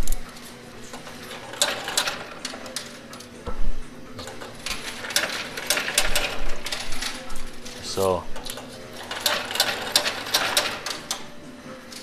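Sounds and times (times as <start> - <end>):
machine mechanical hum: 0.0 - 12.0
coins clattering and clinking: 8.5 - 11.3.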